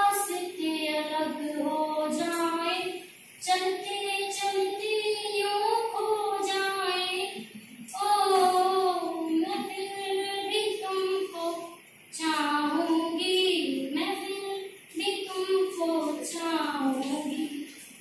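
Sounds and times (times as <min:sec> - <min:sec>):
woman singing unaccompanied: 0:00.0 - 0:17.8.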